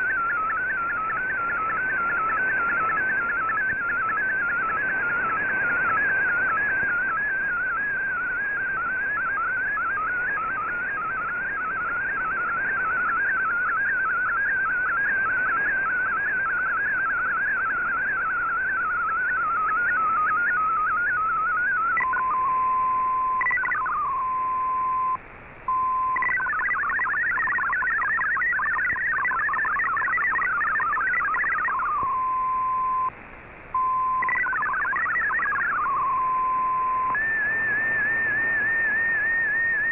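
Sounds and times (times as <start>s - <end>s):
warbling digital data tones: 0.0s - 33.1s, 33.8s - 39.9s
fast chatter of hopping tones: 19.1s - 24.3s, 26.1s - 32.2s, 33.9s - 39.9s.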